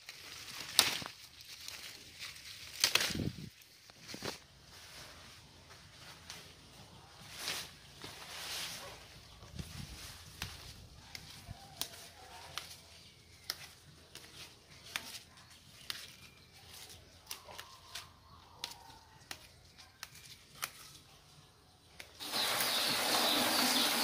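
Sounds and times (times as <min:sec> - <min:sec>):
leaves snapping off stems: 0:00.0 - 0:04.4, 0:10.3 - 0:21.1
foliage rustling: 0:00.0 - 0:21.3.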